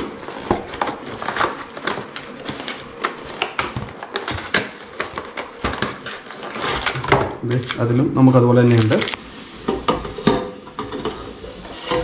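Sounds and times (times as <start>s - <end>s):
cardboard box crinkling: 0.0s - 7.8s.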